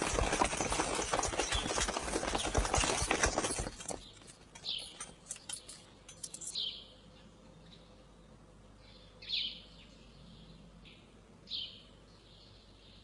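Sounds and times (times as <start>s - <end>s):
running footsteps: 0.0s - 5.6s
horse hooves clattering: 0.0s - 6.6s
bird chirps: 4.0s - 8.0s, 8.8s - 13.0s.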